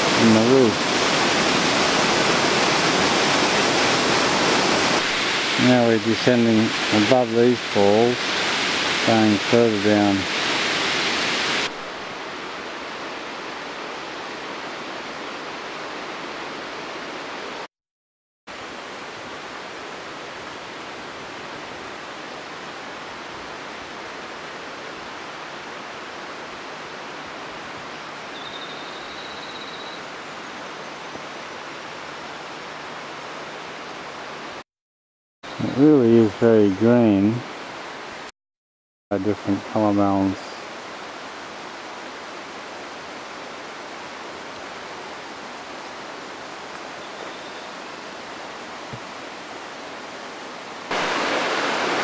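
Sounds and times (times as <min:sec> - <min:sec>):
waterfall rushing: 0:00.0 - 0:17.7, 0:39.1 - 0:52.0.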